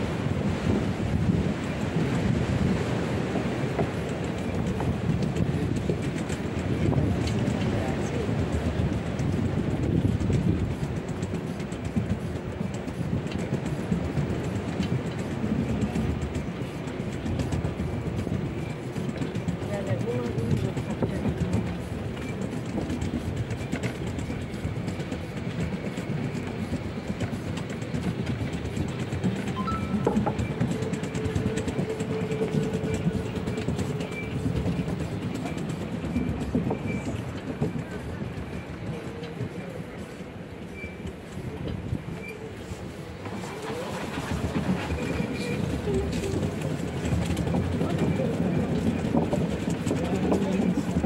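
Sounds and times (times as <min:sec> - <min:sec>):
wheelchair wheels rolling on wood: 0:03.7 - 0:51.0
wheelchair wheels rattling on wood: 0:43.3 - 0:51.0.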